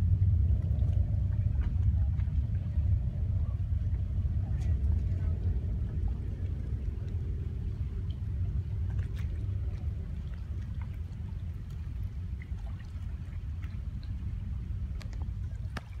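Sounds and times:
distant rocket engine rumble: 0.0 - 16.0.

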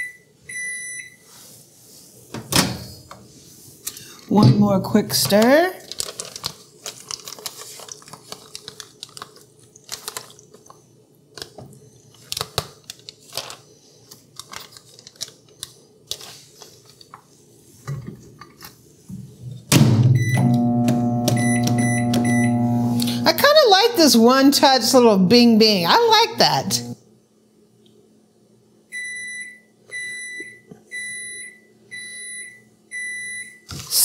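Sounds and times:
microwave humming: 19.4 - 24.2, 25.2 - 27.1.

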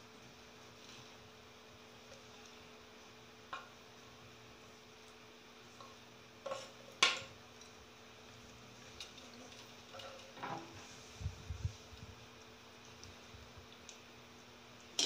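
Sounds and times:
faint steady hum: 0.0 - 15.0
ladle stirring curry in pan: 0.5 - 14.2.

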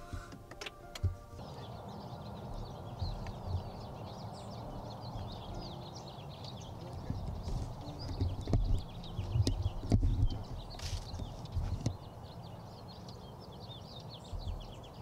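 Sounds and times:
birds chirping: 0.0 - 15.0
footsteps on grass: 1.0 - 5.4, 6.7 - 9.1, 9.7 - 11.8.

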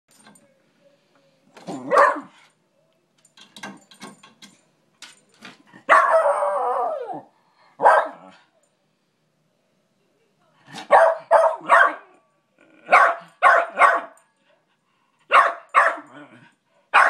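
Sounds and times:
dog barking: 1.8 - 2.4, 5.9 - 7.0, 7.8 - 8.3, 10.8 - 12.1, 12.9 - 14.2, 15.3 - 16.1.

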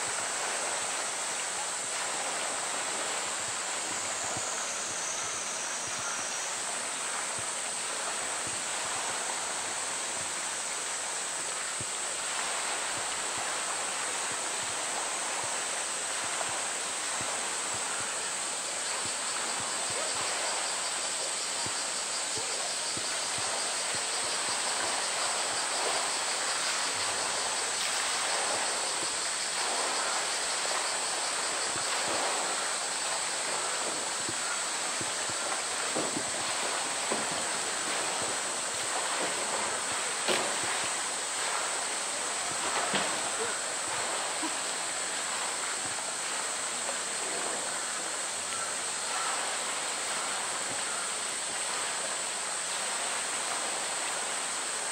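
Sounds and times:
steady high-pitched hiss: 0.0 - 54.9
water sloshing and splashing: 22.8 - 50.2.

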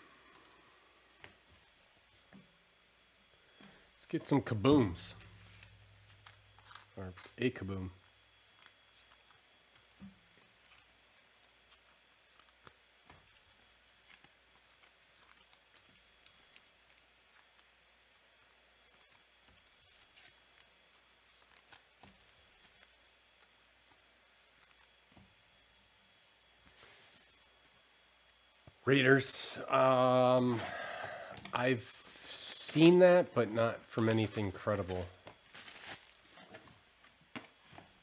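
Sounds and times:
wrappers rustling: 3.9 - 7.7, 8.5 - 28.8, 32.1 - 38.0.

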